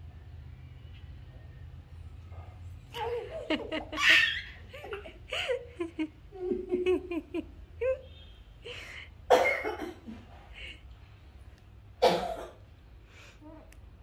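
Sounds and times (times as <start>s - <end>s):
baby laughing: 2.9s - 5.7s
woman laughing: 3.2s - 8.1s.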